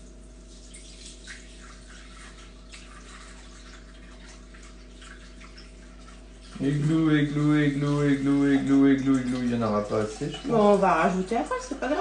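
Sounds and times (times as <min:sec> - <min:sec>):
water trickling into metal bowl: 0:00.0 - 0:12.0
low hum: 0:06.4 - 0:09.6.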